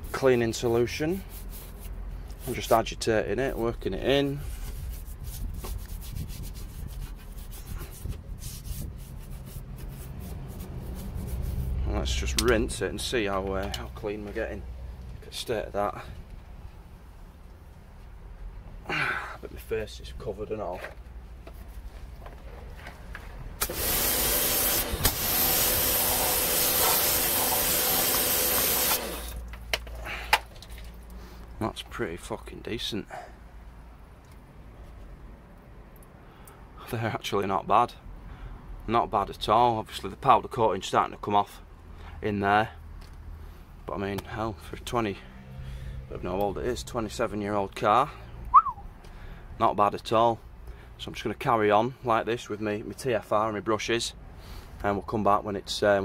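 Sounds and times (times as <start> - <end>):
stiff brush scrubbing metal: 0.0 - 12.4, 23.7 - 29.4
pressure washer spraying water: 23.6 - 29.4.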